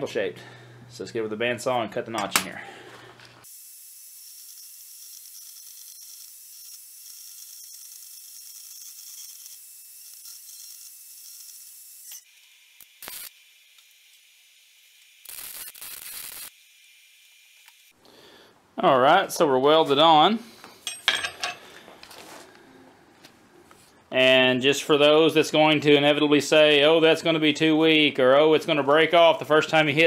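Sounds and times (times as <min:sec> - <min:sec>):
welding bursts: 0:03.4 - 0:13.4, 0:15.0 - 0:16.6
bandsaw cutting steel: 0:03.4 - 0:16.6.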